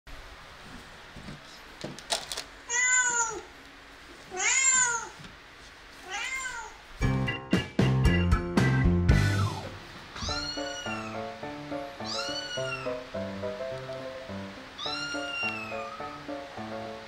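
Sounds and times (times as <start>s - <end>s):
recorded cat meow: 2.7s - 3.5s, 4.3s - 5.2s, 6.0s - 6.8s, 10.2s - 11.2s, 12.0s - 13.0s, 14.8s - 16.1s
light background music: 7.0s - 17.0s.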